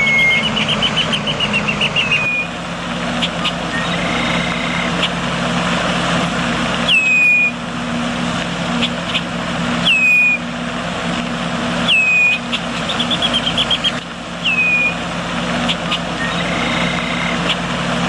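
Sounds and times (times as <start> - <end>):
bird whistles and chattering: 0.0 - 2.5, 3.2 - 5.2, 6.9 - 7.6, 9.8 - 10.4, 11.9 - 15.0, 15.7 - 17.6.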